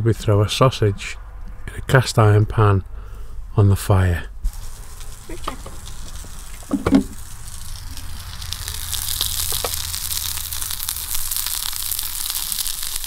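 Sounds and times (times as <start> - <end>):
sausages sizzling in a pan: 4.5 - 13.0.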